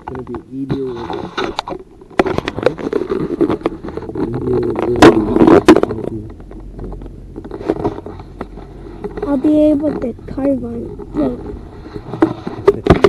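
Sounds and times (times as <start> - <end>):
chairlift rumbling and clattering: 0.0 - 13.0.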